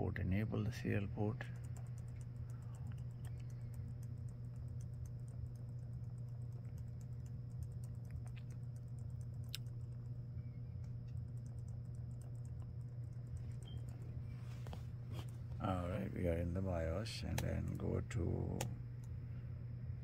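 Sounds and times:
steady low hum: 0.0s - 20.0s
keyboard key tapped rapidly: 1.3s - 10.0s, 10.8s - 14.1s.

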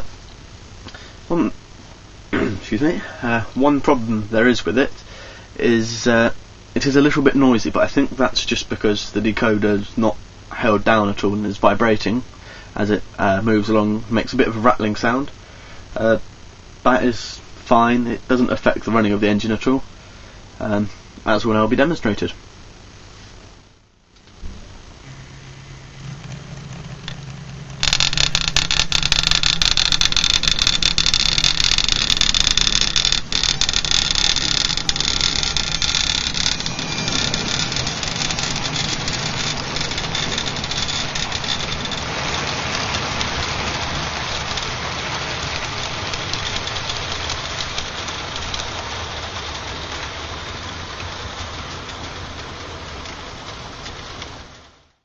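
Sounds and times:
model train motor hum: 25.0s - 54.6s
wheels rattling on track: 25.7s - 54.7s.

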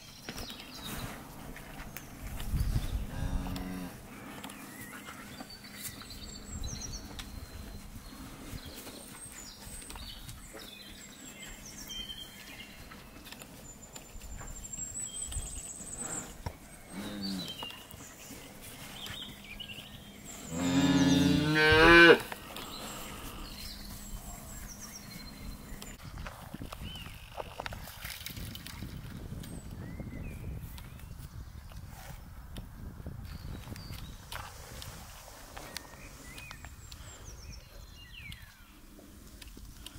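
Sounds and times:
calves mooing: 3.1s - 4.0s, 20.4s - 22.3s.

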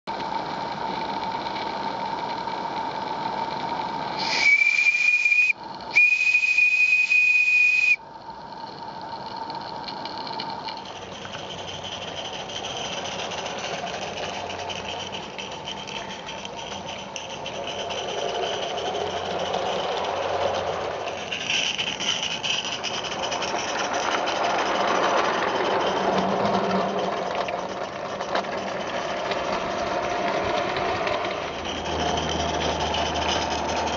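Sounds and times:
model locomotive running on track: 0.1s - 33.9s
steam hissing: 4.0s - 8.1s
steam whistle blasts: 4.2s - 8.0s.

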